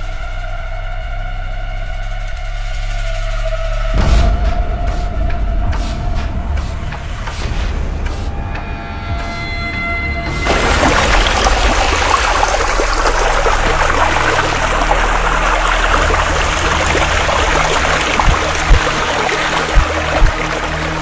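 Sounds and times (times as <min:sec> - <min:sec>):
river water rushing and splashing: 0:10.3 - 0:21.0
low thuds: 0:16.2 - 0:21.0.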